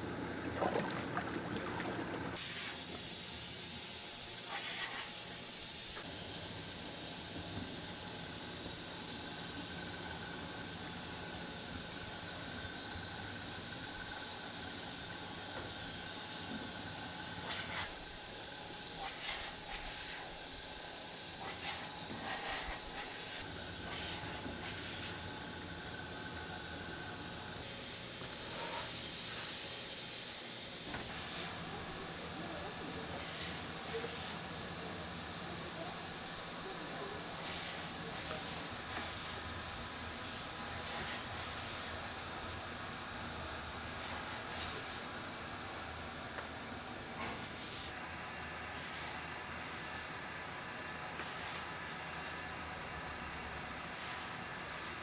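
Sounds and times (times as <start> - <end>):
low machine hum: 0.0 - 2.4
strong high hiss: 2.4 - 48.0.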